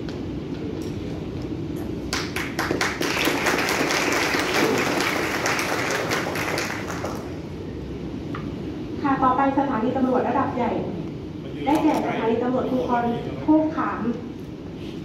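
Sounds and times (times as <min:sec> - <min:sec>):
audience applauding: 0:02.1 - 0:07.4.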